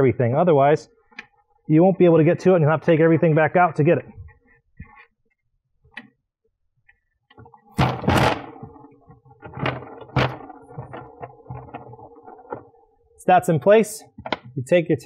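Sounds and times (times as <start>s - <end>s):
sharp knocks: 7.7s - 12.7s
plastic tub scraping rustle: 7.7s - 12.8s.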